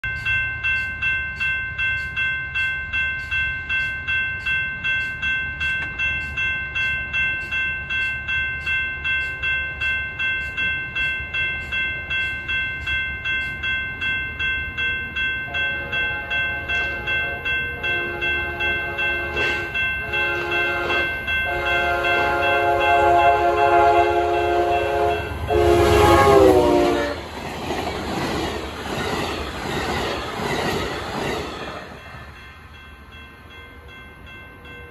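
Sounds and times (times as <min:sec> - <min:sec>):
railroad crossing bell ringing: 0:00.0 - 0:34.9
train horn blasts: 0:15.5 - 0:27.2.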